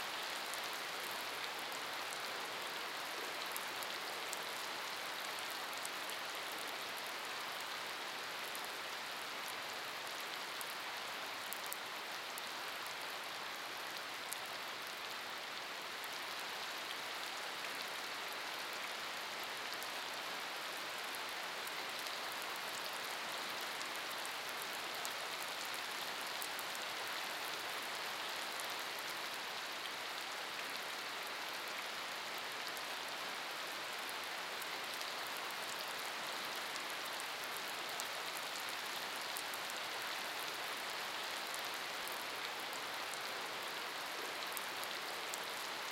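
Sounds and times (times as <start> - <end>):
rain on wet pavement: 0.1 - 45.9.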